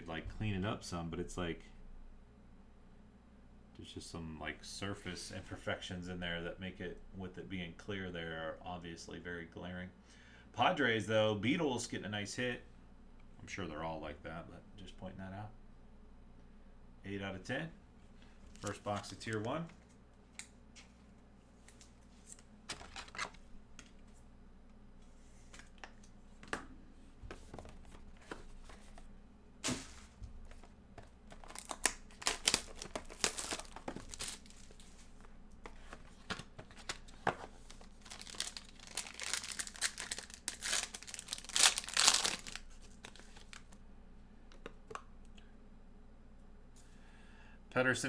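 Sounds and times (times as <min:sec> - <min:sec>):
plastic shrink wrap crinkling: 0:31.3 - 0:35.3, 0:36.1 - 0:43.8.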